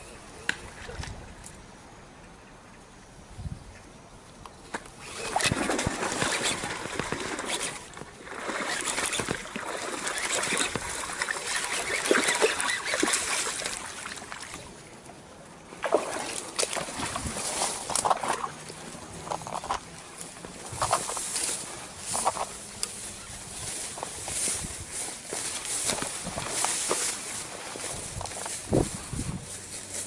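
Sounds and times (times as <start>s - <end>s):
water splashing: 5.0s - 15.0s, 15.6s - 28.8s
fish thrashing on ground: 5.1s - 14.6s, 15.8s - 19.9s, 23.7s - 28.9s.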